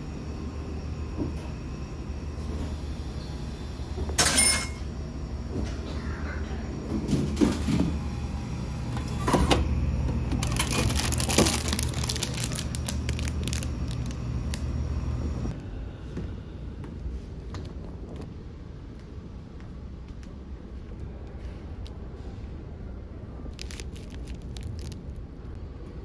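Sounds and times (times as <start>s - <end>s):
steady low hum: 0.0s - 26.0s
vending machine clunks: 4.2s - 4.9s
flap and wrapper rattling: 10.4s - 14.6s, 23.5s - 25.2s.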